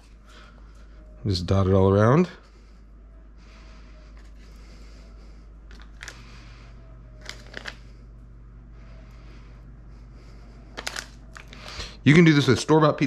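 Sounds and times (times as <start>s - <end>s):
low steady hum: 0.0s - 13.0s
paper wrapper rustling: 10.8s - 12.6s.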